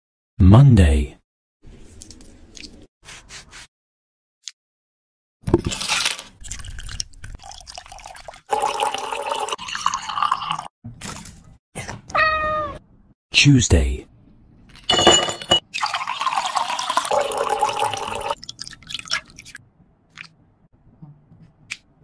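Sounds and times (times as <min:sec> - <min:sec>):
liquid pouring into glass bowl: 0:06.4 - 0:10.7, 0:15.7 - 0:19.6.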